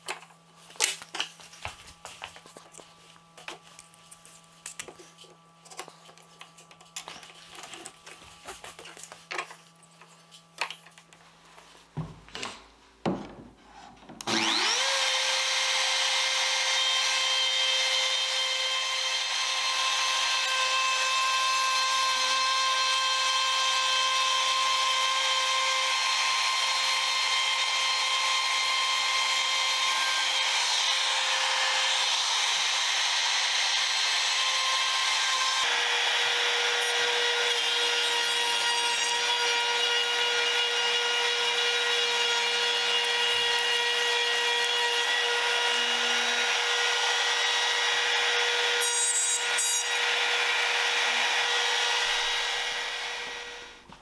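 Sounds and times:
router motor whine: 0:14.2 - 0:53.8
router bit cutting wood: 0:14.2 - 0:53.9.

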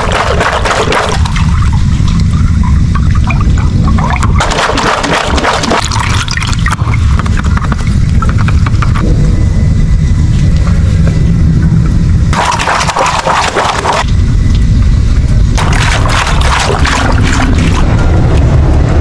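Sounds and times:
hose water filling a balloon: 0:00.0 - 0:08.7, 0:12.3 - 0:14.1, 0:15.6 - 0:18.0.

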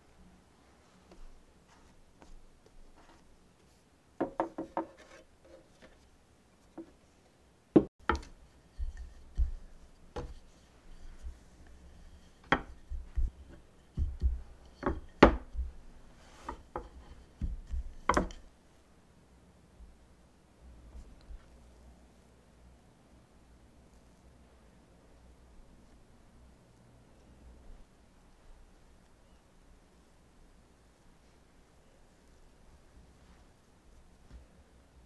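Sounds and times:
rolling pin knocking on wood: 0:04.2 - 0:04.9, 0:07.8 - 0:10.4, 0:12.4 - 0:15.8, 0:16.5 - 0:18.4.

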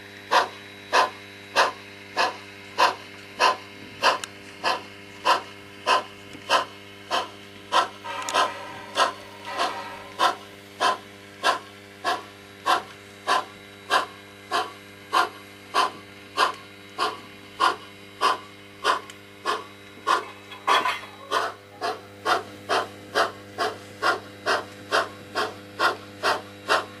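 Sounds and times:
model steam locomotive chuffs: 0:00.0 - 0:27.0
low hum: 0:08.0 - 0:10.7.

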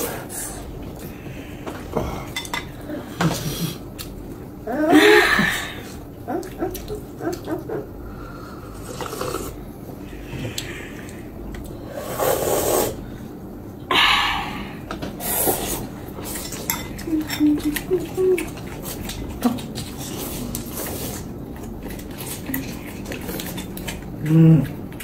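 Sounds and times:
slurping noodles: 0:08.6 - 0:09.6, 0:11.8 - 0:13.0
chopsticks clicking on bowls: 0:16.4 - 0:20.6.

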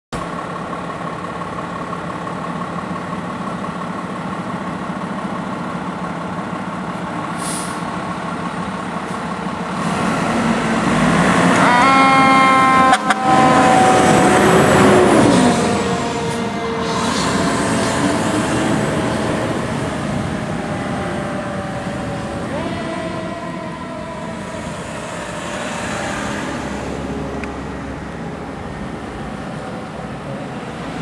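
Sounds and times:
diesel engine running: 0:00.2 - 0:31.0
air hiss: 0:07.4 - 0:07.9
siren rising and falling: 0:10.6 - 0:30.0
air horn: 0:11.6 - 0:18.1.

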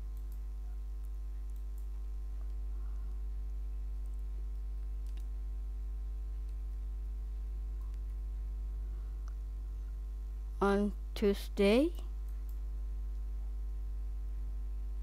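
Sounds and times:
low electrical hum: 0:00.0 - 0:15.0
keyboard typing clicks: 0:00.1 - 0:02.6, 0:04.0 - 0:05.3.

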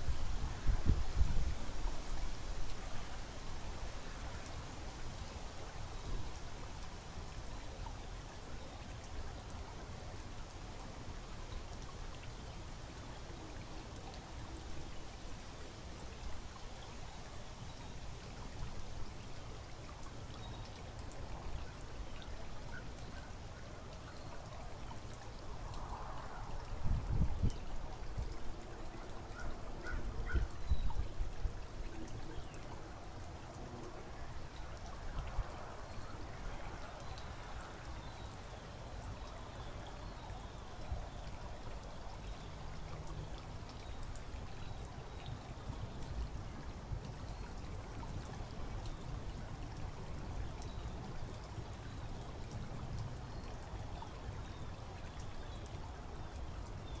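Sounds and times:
running water: 0:00.0 - 0:57.0.

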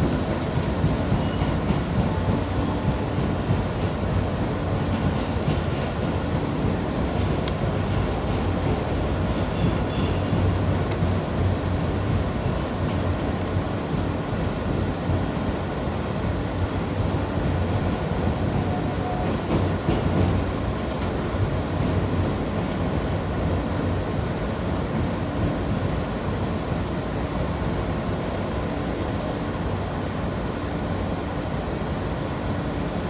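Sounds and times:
train wheels rumbling on rails: 0:00.0 - 0:33.0.

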